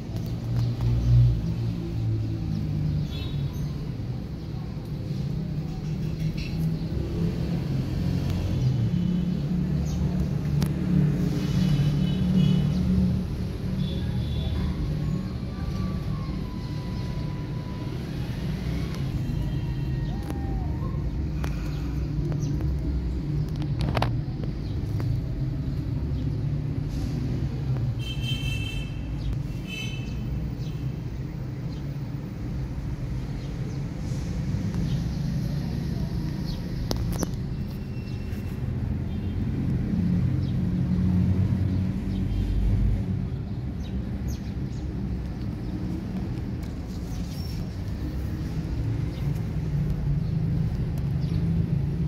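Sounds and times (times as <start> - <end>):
distant road traffic: 0.0 - 52.0.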